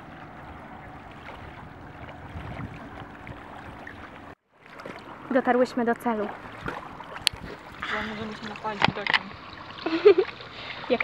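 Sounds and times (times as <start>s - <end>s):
wind on microphone: 0.0s - 4.4s
small waves lapping at shore: 0.0s - 11.0s.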